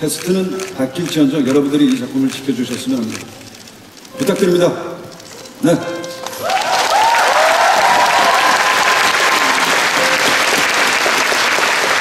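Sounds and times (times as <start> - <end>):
audience applauding: 6.2 - 12.0.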